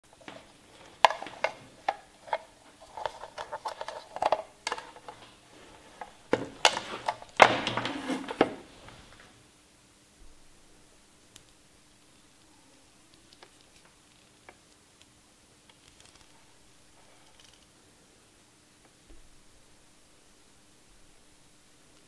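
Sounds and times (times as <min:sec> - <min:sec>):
cable rustling scrape: 0:00.2 - 0:09.3.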